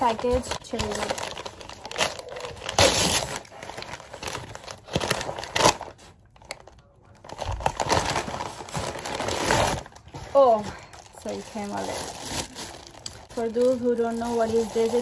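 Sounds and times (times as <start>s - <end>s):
paper bag crinkling: 0.0s - 15.0s.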